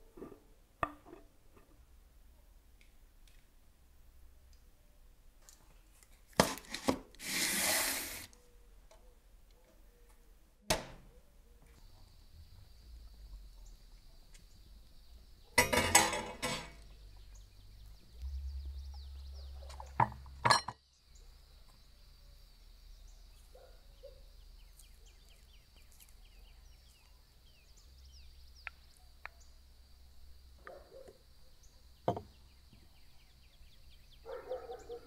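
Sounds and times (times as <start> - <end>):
cookware clattering: 15.6 - 16.8.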